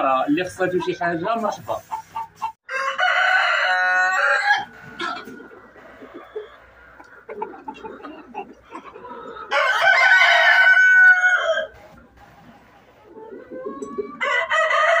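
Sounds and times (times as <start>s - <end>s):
hens clucking softly: 0.4s - 2.6s, 4.6s - 9.8s, 11.5s - 14.9s
rooster crowing: 2.7s - 5.2s, 9.5s - 11.8s, 14.2s - 15.0s.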